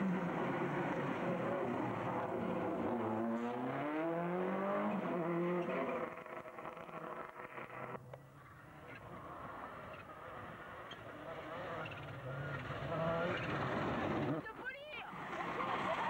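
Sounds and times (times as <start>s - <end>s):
rally car engine revving: 0.0s - 8.1s, 8.7s - 14.4s.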